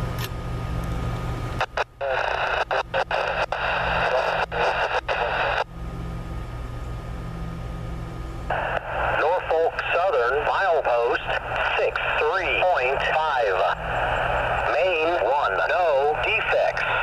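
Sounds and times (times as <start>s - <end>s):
automated voice over radio: 1.6s - 5.7s, 8.5s - 17.0s
radio static: 1.6s - 5.7s, 8.5s - 17.0s.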